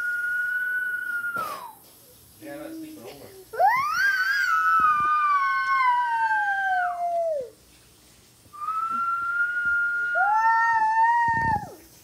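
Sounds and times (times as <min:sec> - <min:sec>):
boy howling: 0:03.6 - 0:07.6, 0:08.6 - 0:11.8.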